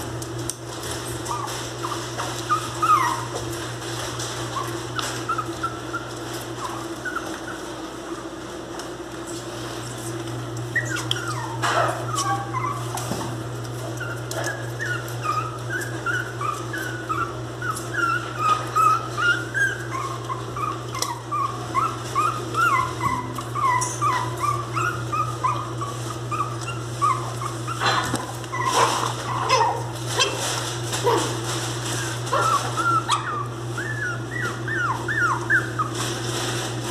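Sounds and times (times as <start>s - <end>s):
dog whimpering and yelping: 1.2s - 3.6s, 4.5s - 8.2s, 10.7s - 13.1s, 13.9s - 30.3s, 31.9s - 36.1s.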